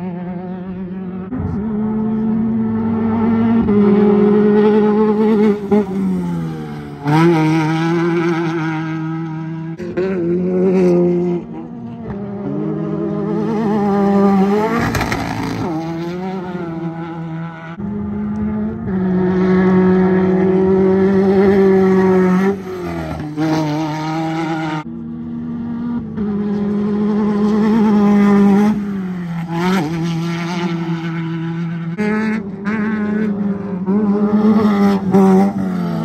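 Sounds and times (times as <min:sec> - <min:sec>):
race car engines revving: 0:00.0 - 0:36.0.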